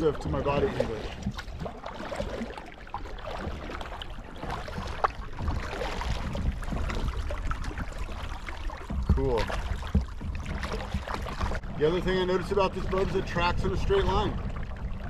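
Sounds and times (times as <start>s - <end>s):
kayak paddle strokes in water: 0.0s - 15.0s.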